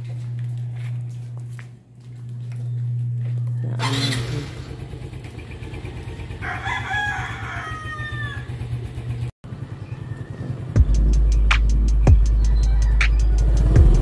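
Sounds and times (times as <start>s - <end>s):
scooter engine idling: 3.2s - 14.0s
rooster crowing: 6.0s - 9.0s, 12.3s - 13.7s.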